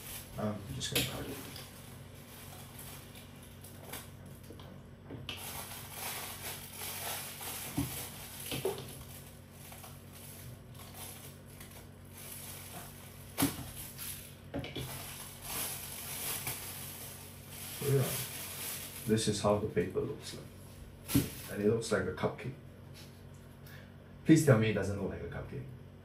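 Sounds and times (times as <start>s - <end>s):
paper wrapping rustling and crinkling: 0.0s - 4.6s, 5.3s - 19.5s, 21.0s - 21.6s.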